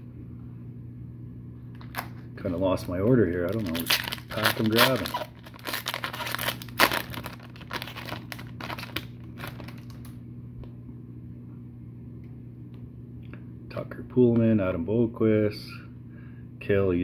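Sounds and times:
low steady hum: 0.0 - 17.0
foil wrapper crinkling and tearing: 1.8 - 10.2.

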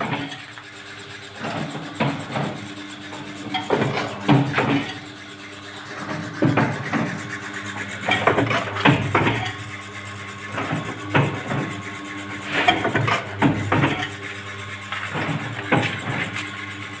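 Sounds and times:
machine dies knocking and clanking: 0.0 - 0.5, 1.4 - 5.1, 8.0 - 9.6, 10.5 - 11.8, 12.4 - 14.2, 14.9 - 16.4
machine motor hum: 0.0 - 17.0.

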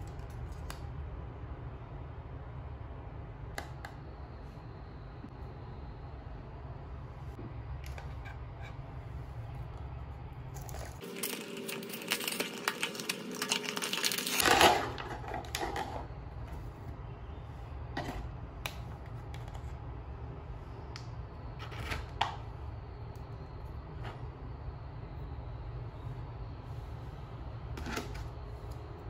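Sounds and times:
packaging crinkling and rustling: 10.6 - 16.1.

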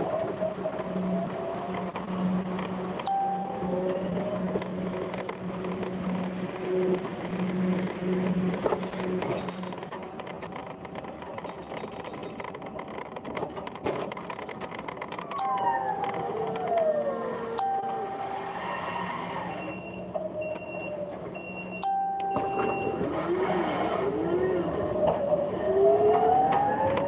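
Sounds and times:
forklift motor whine: 0.0 - 10.1, 15.1 - 27.0
warning beeper beeps: 19.5 - 23.2.

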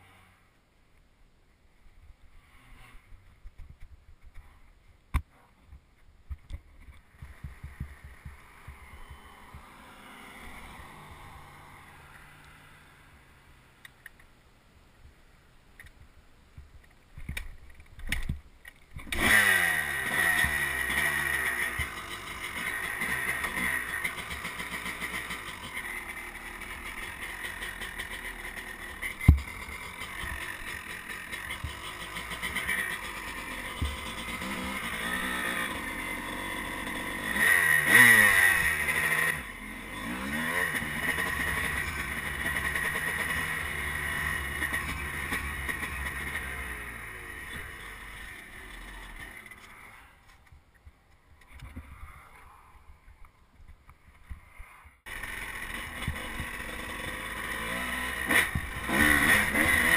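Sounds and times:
dirt bike engine running: 6.8 - 12.9, 19.0 - 50.0, 55.1 - 59.9
heavy thumps of kick start: 29.0 - 33.0.

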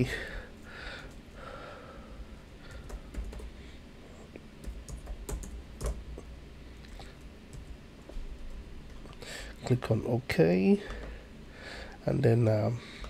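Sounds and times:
typing on a computer keyboard: 2.7 - 3.6, 4.6 - 6.0.

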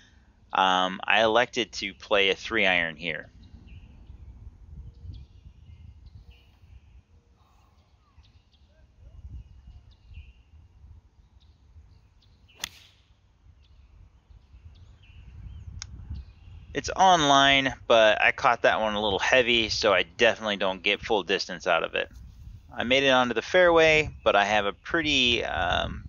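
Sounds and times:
golf club striking ball: 12.5 - 13.1.

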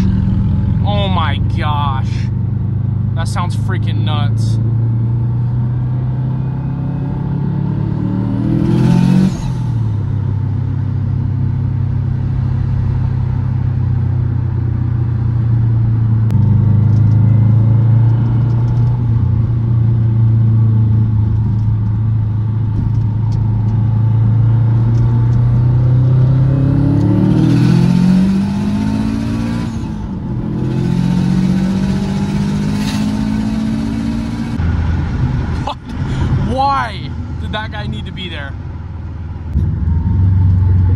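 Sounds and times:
turbocharged car engine revving: 3.0 - 14.0, 23.6 - 38.1.

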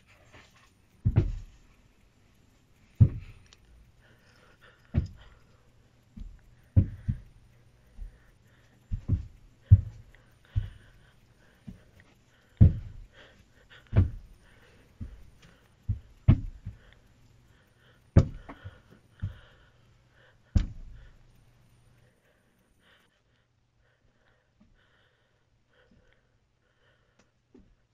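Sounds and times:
faint low hum: 0.0 - 27.9.

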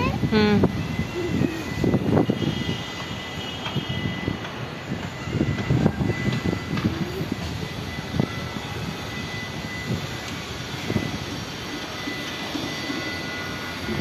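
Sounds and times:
distant urban rumble: 0.0 - 14.0.

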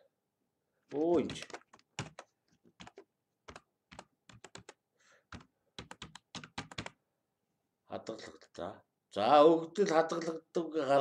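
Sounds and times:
typing on computer keyboard: 1.1 - 7.0.

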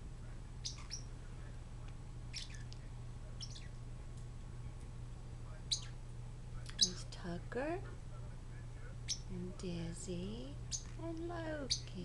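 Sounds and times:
low steady hum: 0.0 - 12.0
parrotlets chirping: 0.6 - 1.2, 2.3 - 2.8, 3.4 - 3.8, 5.7 - 6.0, 6.7 - 7.1, 9.0 - 9.3, 10.6 - 11.0, 11.6 - 12.0.

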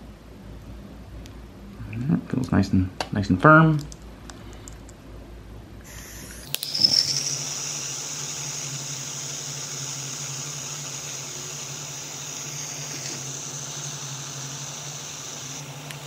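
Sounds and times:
heat tool hissing: 5.8 - 16.0.

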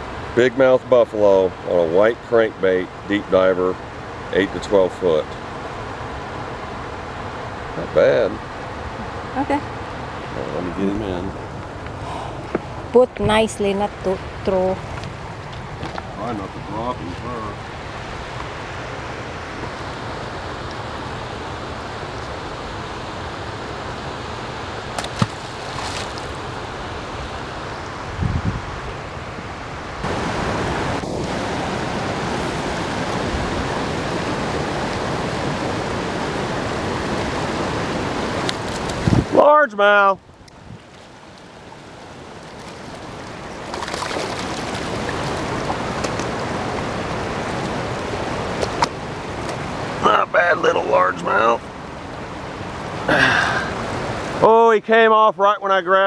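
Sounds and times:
water rushing below dam: 0.0 - 56.0
wind on microphone: 27.2 - 39.4.

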